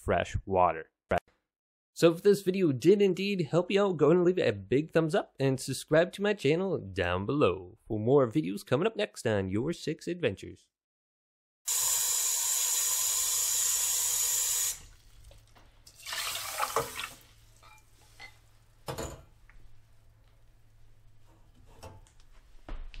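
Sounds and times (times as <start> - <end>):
tap water running: 11.7 - 18.1.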